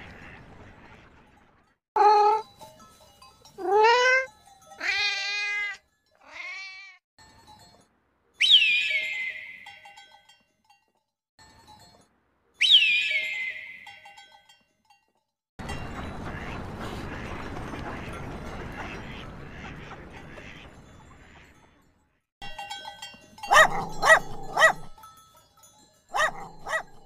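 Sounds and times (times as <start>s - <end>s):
animal cries: 3.6s - 7.0s.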